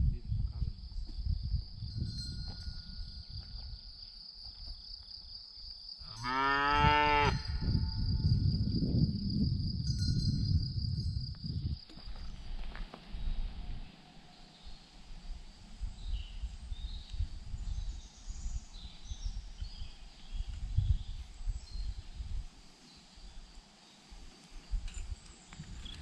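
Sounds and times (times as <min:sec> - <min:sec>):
cow mooing: 0:06.1 - 0:07.5.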